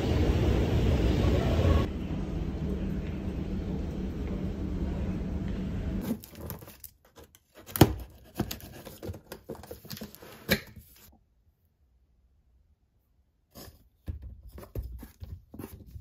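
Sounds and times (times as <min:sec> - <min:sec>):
low rumble: 0:00.0 - 0:06.0
packing tape tearing: 0:06.0 - 0:10.8
cardboard flaps crinkling and knocking: 0:06.0 - 0:11.0, 0:13.8 - 0:16.0.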